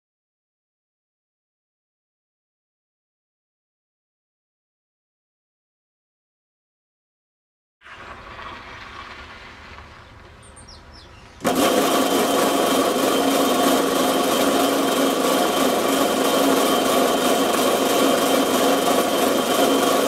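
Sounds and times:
chain drive machine whirring: 11.4s - 20.0s
chain running over sprockets: 11.4s - 20.0s.

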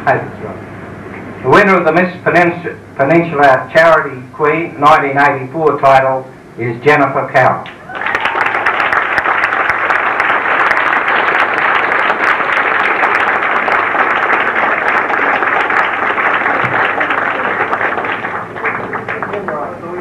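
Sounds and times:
large audience applauding: 7.8s - 20.0s.

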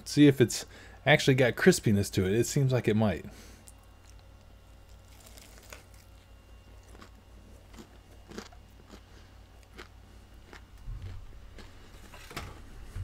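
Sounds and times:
biting into sandwich: 3.6s - 12.2s
crisp chewing crunches: 3.6s - 12.2s.

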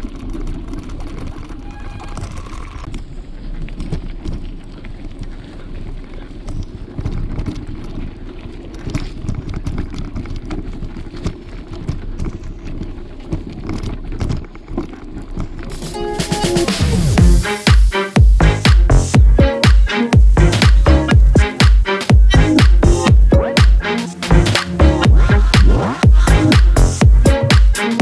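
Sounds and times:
bike rattling over bumps: 0.0s - 15.7s
bike tyres rumbling on trail: 0.0s - 15.9s
music with a beat: 15.7s - 28.0s.

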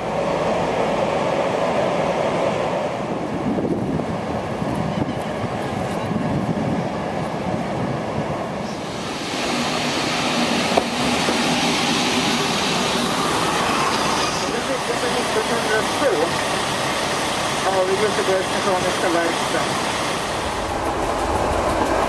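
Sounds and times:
railcar running: 0.0s - 22.0s
hiss: 8.6s - 14.6s.

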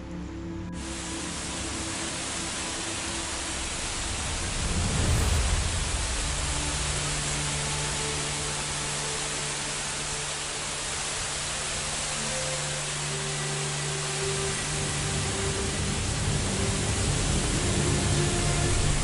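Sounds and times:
heavy rain on water: 0.8s - 19.0s
brief low rumble: 4.1s - 8.0s.

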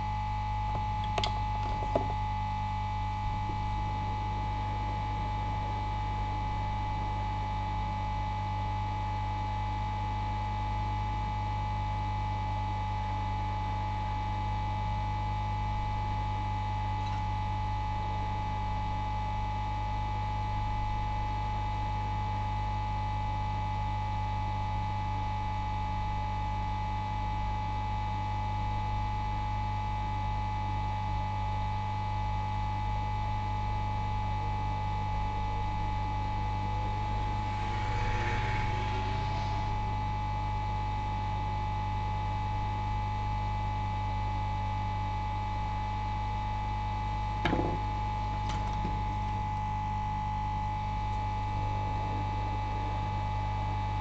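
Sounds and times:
electrical mains hum: 0.0s - 8.4s, 14.5s - 19.4s, 32.4s - 54.0s.

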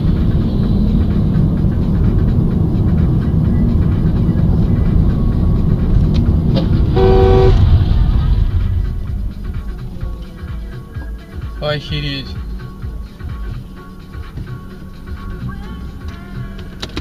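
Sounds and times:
car engine and tyres rumbling: 0.0s - 17.0s
car horn: 6.6s - 8.0s.

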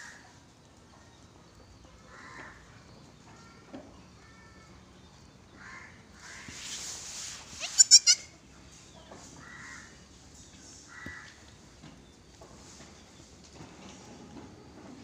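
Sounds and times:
goat bleating: 7.6s - 8.3s.

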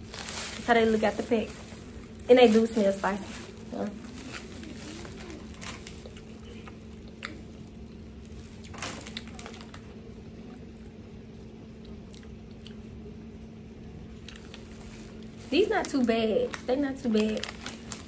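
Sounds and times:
crackers being bitten and chewed: 3.9s - 13.2s, 14.2s - 15.4s.

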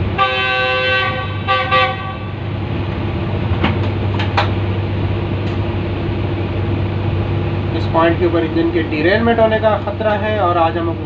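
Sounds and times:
locomotive air horn blasts: 0.0s - 2.5s
diesel engine running: 0.0s - 11.0s.

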